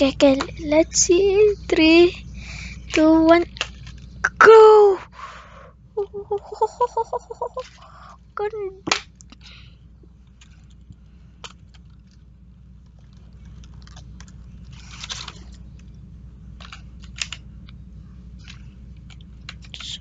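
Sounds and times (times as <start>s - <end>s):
low background hum: 0.0s - 20.0s
cardboard and plastic crinkling: 10.3s - 15.9s.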